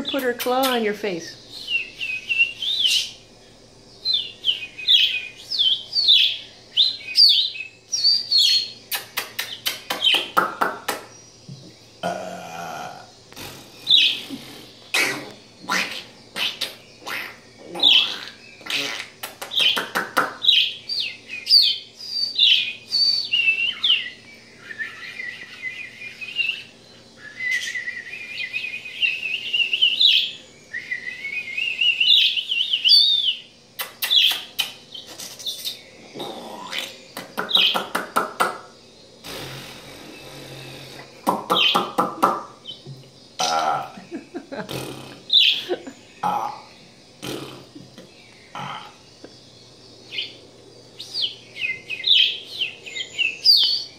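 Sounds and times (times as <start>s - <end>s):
low rough burp-like bird sounds: 11.5s - 19.3s, 36.0s - 38.0s, 39.2s - 49.1s
budgerigar chattering: 13.4s - 20.7s, 33.9s - 38.6s, 39.3s - 42.5s.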